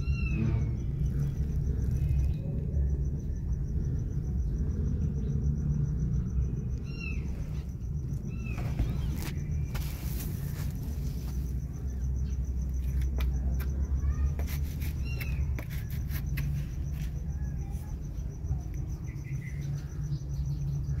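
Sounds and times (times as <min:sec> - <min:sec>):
kittens squeaking: 0:06.8 - 0:09.9, 0:14.0 - 0:15.6.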